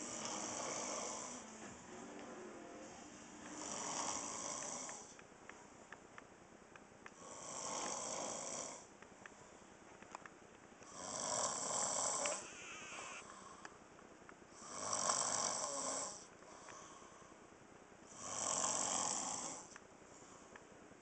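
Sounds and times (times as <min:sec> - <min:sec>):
man snoring: 0:00.0 - 0:05.1, 0:07.2 - 0:08.9, 0:10.9 - 0:13.5, 0:14.6 - 0:16.3, 0:18.1 - 0:19.7.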